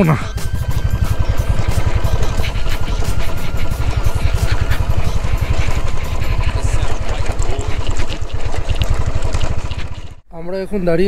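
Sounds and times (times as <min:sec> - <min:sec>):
motorcycle engine low exhaust beat: 0:00.0 - 0:09.2.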